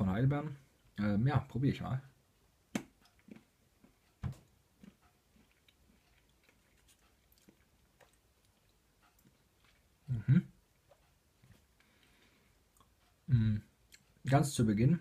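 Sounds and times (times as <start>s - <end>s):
crunchy chewing clicks: 2.8s - 11.2s, 11.8s - 14.2s.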